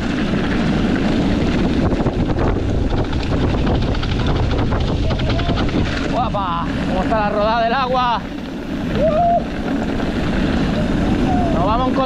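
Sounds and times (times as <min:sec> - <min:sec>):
bike rattling: 0:00.0 - 0:12.0
bike tyres crunching: 0:00.0 - 0:12.0
wind buffeting microphone: 0:00.0 - 0:12.0.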